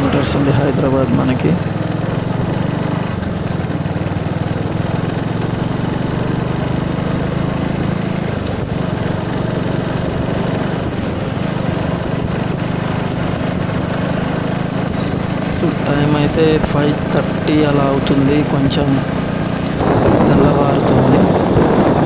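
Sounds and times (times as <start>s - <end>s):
motorcycle engine cruising: 0.0s - 22.0s
wind rushing over microphone: 18.3s - 22.0s.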